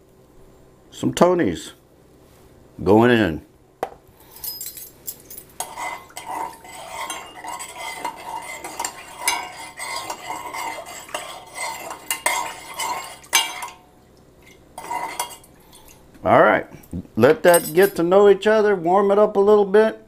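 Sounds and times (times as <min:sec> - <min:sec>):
metal spoon clinking in saucepan: 0:04.6 - 0:13.9, 0:14.8 - 0:15.9.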